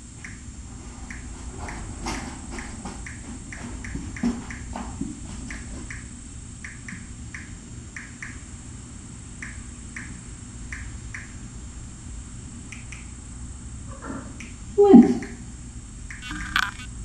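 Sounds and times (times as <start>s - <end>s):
claws clicking on hard floor: 16.1s - 16.9s.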